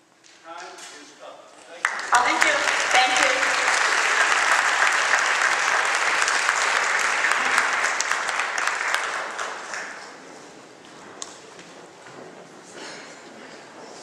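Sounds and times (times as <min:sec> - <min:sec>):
audience applauding: 0:01.6 - 0:10.6.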